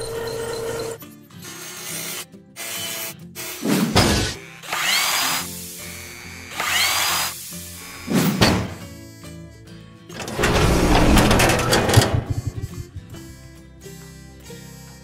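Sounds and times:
music: 0.0 - 15.0
heavy mechanical thuds: 10.2 - 13.4.

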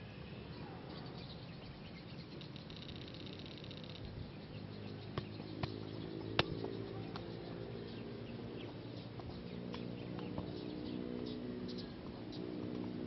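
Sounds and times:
birds chirping: 0.0 - 13.0
feet kicking a football: 5.1 - 5.8.

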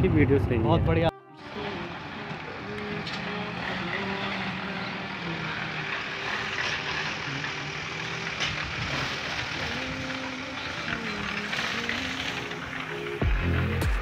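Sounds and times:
faint tune of held notes: 1.0 - 9.0.

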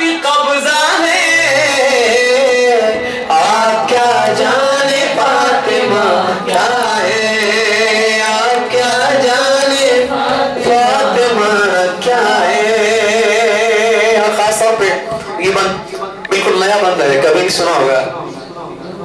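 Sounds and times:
man chanting melodic recitation: 0.0 - 19.0.

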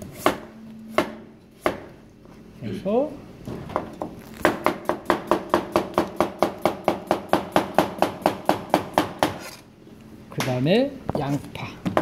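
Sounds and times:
knife chopping on plastic board: 0.2 - 1.9, 4.4 - 9.5.

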